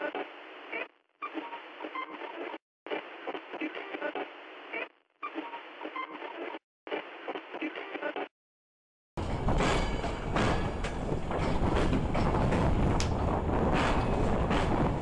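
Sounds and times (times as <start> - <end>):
crackly radio static: 0.0 - 8.3.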